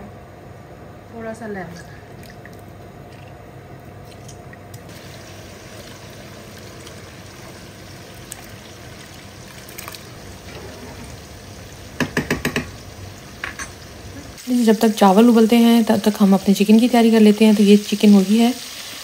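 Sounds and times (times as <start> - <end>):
pot of water boiling: 4.8 - 19.0.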